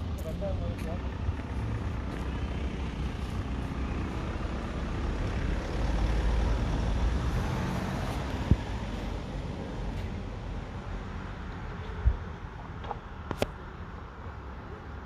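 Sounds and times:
wind rumble on microphone: 8.2s - 9.1s, 11.9s - 12.4s.

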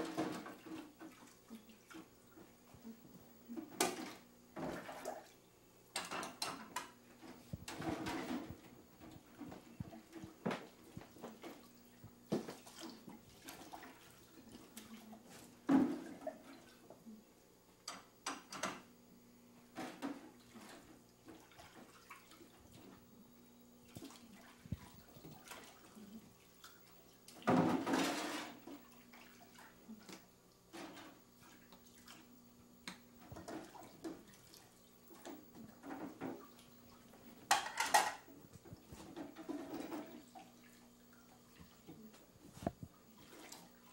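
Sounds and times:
faint electrical hum: 0.0s - 43.9s
dishes clinking and knocking: 5.9s - 7.0s, 37.4s - 38.3s
running water: 20.5s - 43.9s.

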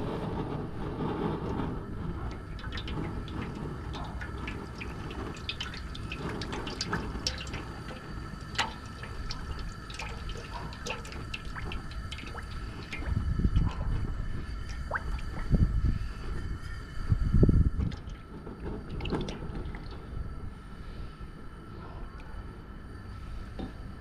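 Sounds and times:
oil drips and splashes: 2.2s - 16.1s, 17.8s - 20.1s
oil pouring into a metal pot: 2.3s - 15.8s, 17.8s - 20.0s.

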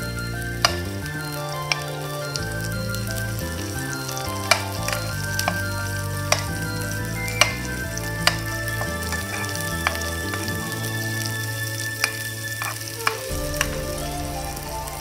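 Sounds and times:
food sizzling in hot oil: 0.0s - 15.0s.

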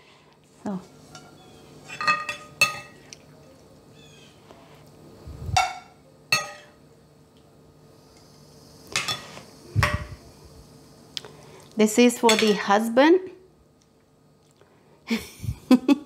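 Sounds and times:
metal spoon clinking on ceramic: 5.6s - 6.7s.

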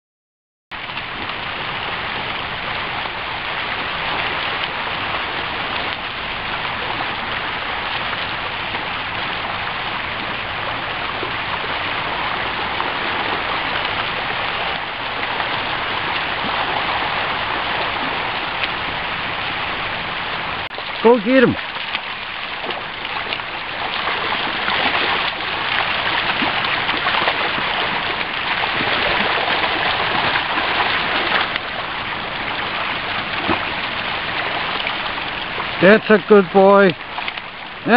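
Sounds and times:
river rushing over stones: 0.8s - 37.9s.

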